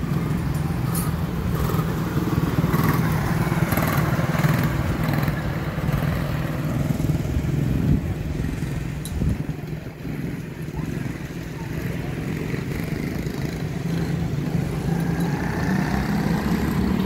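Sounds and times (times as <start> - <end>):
small race car engines buzzing: 0.0 - 17.0.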